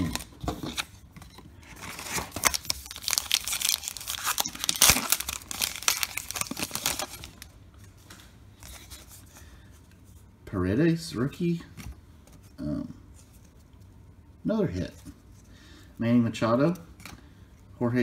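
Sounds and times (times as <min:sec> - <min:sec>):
wrapper tearing and crinkling: 0:00.0 - 0:00.8, 0:01.8 - 0:07.5.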